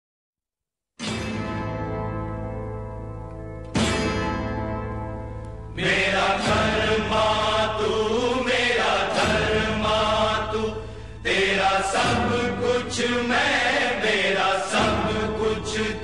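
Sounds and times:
chorus singing held notes: 5.7 - 16.0.

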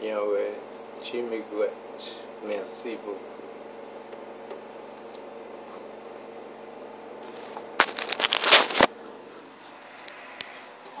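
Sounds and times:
steady low hum: 0.0 - 11.0
phone handling rustling and scraping: 7.2 - 10.8.

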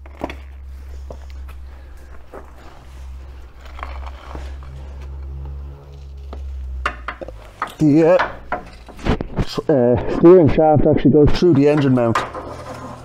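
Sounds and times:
steady low hum: 0.0 - 13.0
metallic clinks and knocks: 6.8 - 9.3.

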